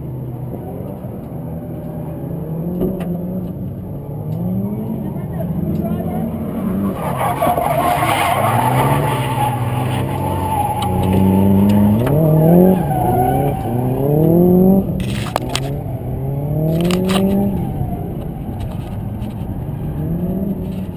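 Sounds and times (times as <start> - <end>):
car engines revving: 0.0 - 20.9.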